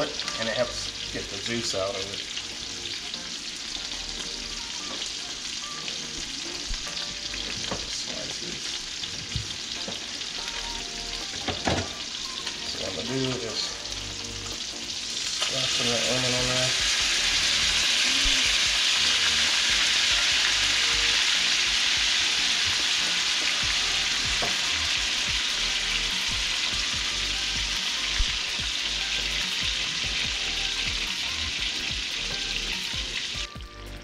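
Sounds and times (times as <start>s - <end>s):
fish sizzling in a skillet: 0.0s - 33.7s.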